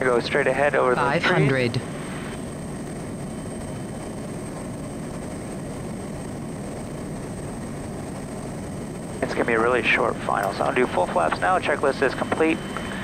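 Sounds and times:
turboprop engine running: 0:00.0 - 0:13.0.

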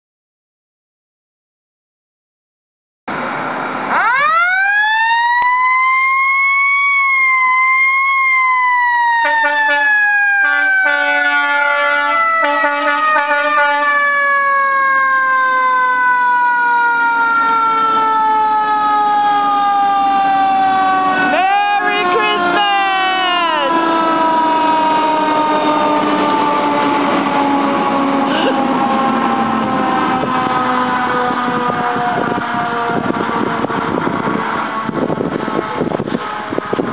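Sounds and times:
mechanical siren wailing: 0:03.9 - 0:36.9
horn blasts: 0:09.2 - 0:14.0, 0:35.3 - 0:36.9.

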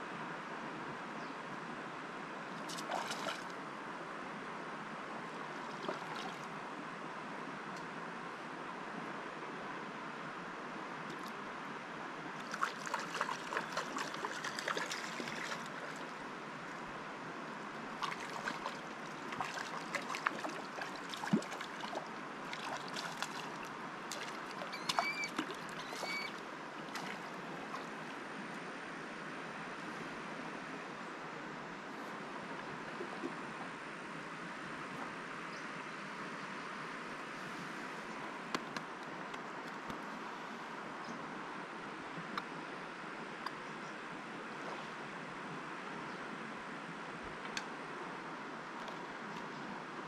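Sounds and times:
river water flowing: 0:00.0 - 0:50.0
small splashes and clicks: 0:12.4 - 0:16.2, 0:18.0 - 0:27.9.

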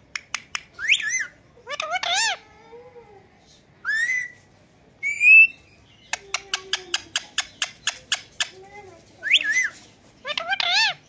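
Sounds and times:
sharp clicks: 0:00.1 - 0:00.8
parakeet whistled calls: 0:00.8 - 0:02.4, 0:03.8 - 0:04.4, 0:05.0 - 0:06.2, 0:09.2 - 0:11.0
parakeet mimicking cat miaow: 0:01.1 - 0:02.8, 0:06.1 - 0:09.7.

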